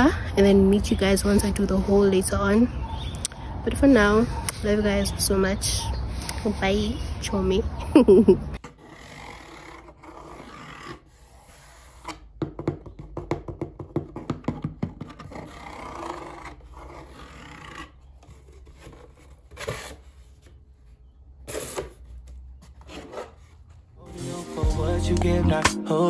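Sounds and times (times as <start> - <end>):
cardboard rubbing and scraping: 8.6 - 12.2, 14.0 - 23.8.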